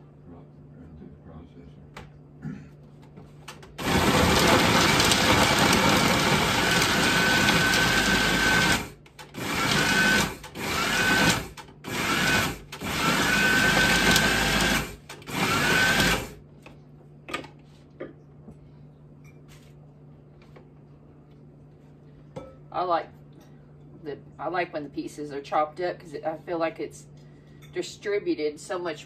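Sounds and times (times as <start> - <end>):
food processor motor whirring: 3.8 - 16.4.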